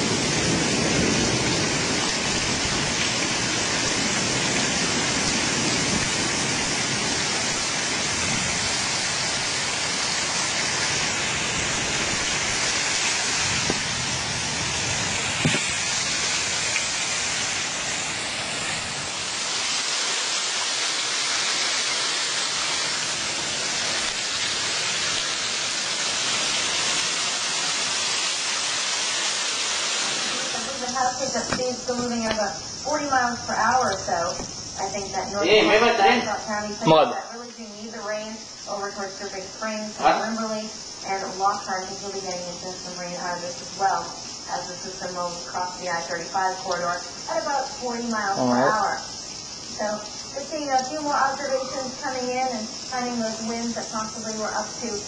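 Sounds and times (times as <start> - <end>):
steady rain hiss: 0.0 - 55.0.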